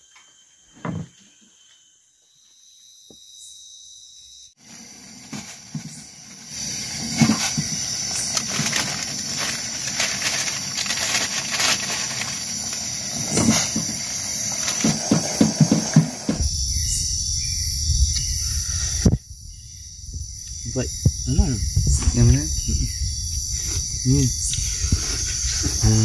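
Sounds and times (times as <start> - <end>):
night insects chirping: 0.0 - 26.0
gas stove hissing: 4.6 - 19.1.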